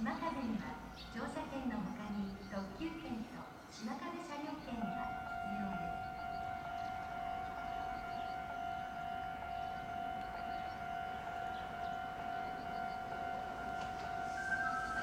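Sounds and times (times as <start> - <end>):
high-pitched electronic tone: 14.2 - 15.0.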